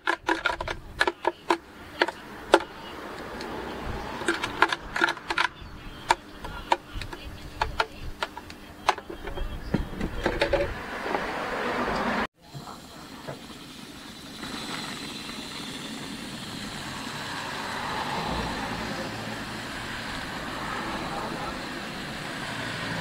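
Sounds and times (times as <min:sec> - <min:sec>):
blender jar tapping plastic cup: 0:00.0 - 0:11.2
steady background hum: 0:00.0 - 0:11.2.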